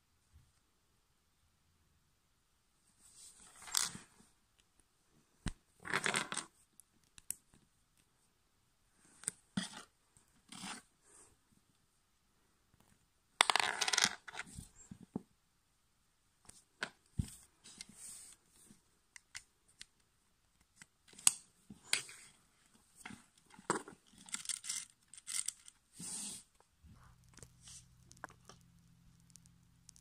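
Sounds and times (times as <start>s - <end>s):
plastic parts clicking and rattling: 23.0s - 25.8s.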